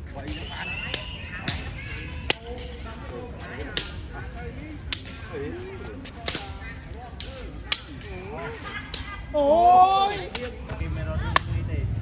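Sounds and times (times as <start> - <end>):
foot kicking shuttlecock: 4.8 - 8.2.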